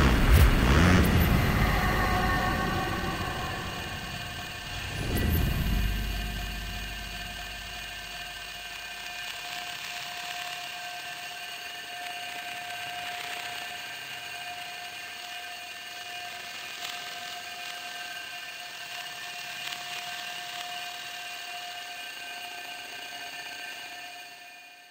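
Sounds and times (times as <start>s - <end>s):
deep rumble: 0.0s - 8.6s
eerie high drone: 0.0s - 9.1s.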